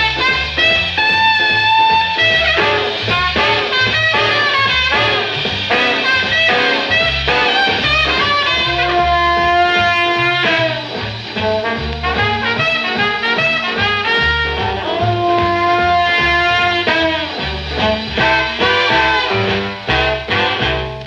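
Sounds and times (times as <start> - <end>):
swing band on old record: 0.0 - 21.0.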